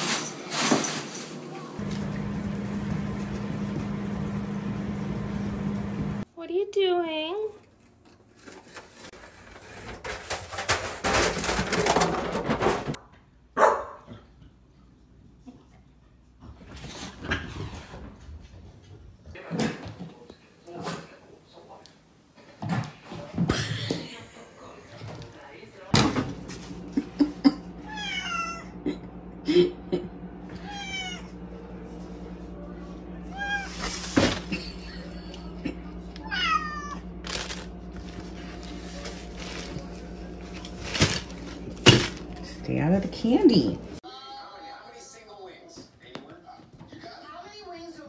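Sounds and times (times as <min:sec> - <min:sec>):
paper bag rustling: 0:00.0 - 0:01.9, 0:08.2 - 0:13.0, 0:37.2 - 0:42.5
puppy barking: 0:13.6 - 0:14.1
cat meowing: 0:27.9 - 0:28.8, 0:30.6 - 0:31.4, 0:33.3 - 0:33.8, 0:36.2 - 0:37.0.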